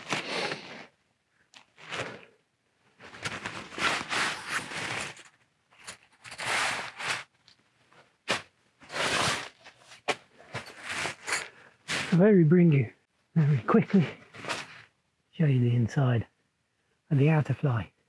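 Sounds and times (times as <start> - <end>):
tent fabric rustling: 0.0 - 1.0, 1.6 - 2.2, 3.0 - 7.3, 8.2 - 12.2, 14.0 - 14.9.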